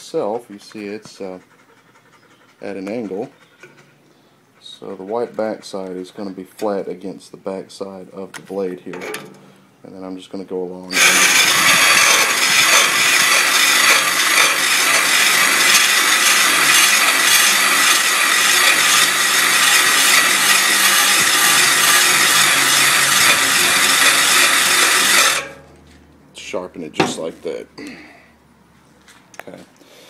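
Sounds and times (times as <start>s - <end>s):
cordless drill motor: 10.9s - 25.6s
grindstone grinding steel: 10.9s - 25.7s.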